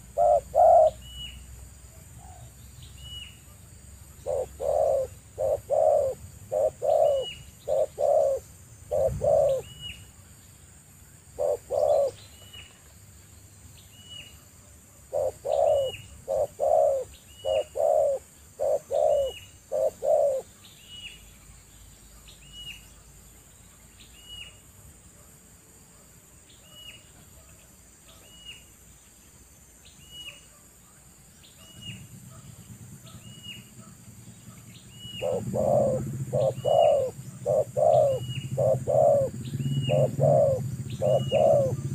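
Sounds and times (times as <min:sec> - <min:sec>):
dove cooing: 0:00.0 - 0:01.3, 0:04.2 - 0:09.9, 0:11.3 - 0:12.2, 0:15.0 - 0:20.5, 0:33.0 - 0:41.9.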